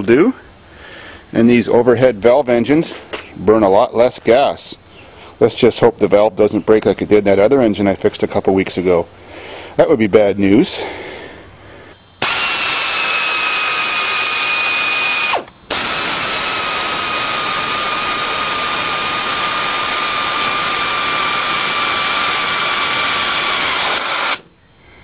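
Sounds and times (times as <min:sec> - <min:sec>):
pneumatic air tool whining: 0:12.2 - 0:24.5.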